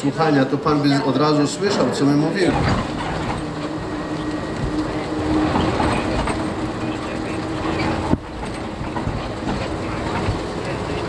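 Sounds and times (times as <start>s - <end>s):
coach engine drone: 0.0s - 11.0s
road rumble: 0.0s - 11.0s.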